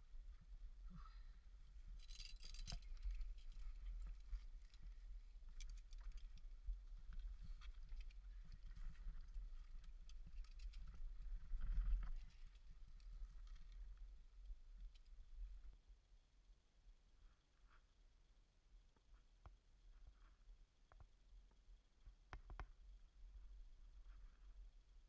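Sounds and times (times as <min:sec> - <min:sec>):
gear clicking and clinking: 0:02.0 - 0:04.9, 0:05.5 - 0:06.5, 0:07.1 - 0:13.8.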